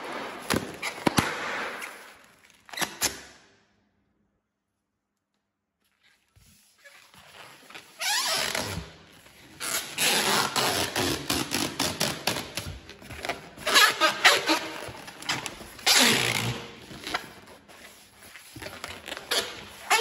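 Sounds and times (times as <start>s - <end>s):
rubber balloon squeaking: 6.8s - 8.9s, 9.6s - 12.4s, 13.6s - 17.5s, 18.5s - 20.0s.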